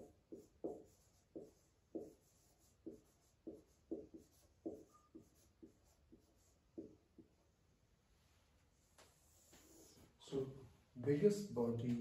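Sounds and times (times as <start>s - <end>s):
marker writing on whiteboard: 0.0s - 7.5s, 8.8s - 10.2s.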